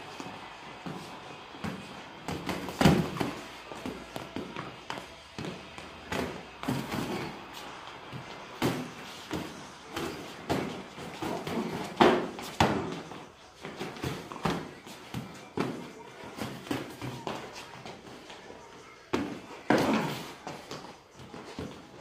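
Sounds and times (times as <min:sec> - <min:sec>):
punches and kicks thudding: 0:01.7 - 0:03.4.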